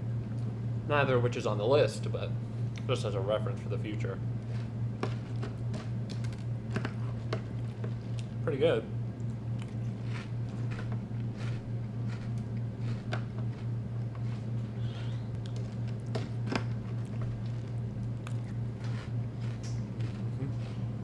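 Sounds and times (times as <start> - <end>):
low hum: 0.0 - 21.0
crunchy chewing of cereal: 4.4 - 8.4, 9.2 - 21.0.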